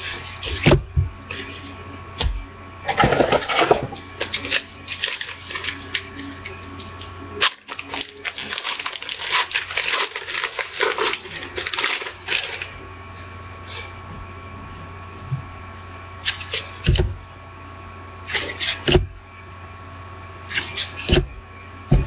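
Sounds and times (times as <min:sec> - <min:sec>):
steady low hum: 0:00.0 - 0:22.0
wrapper crinkling and tearing: 0:04.2 - 0:06.1, 0:07.4 - 0:12.7.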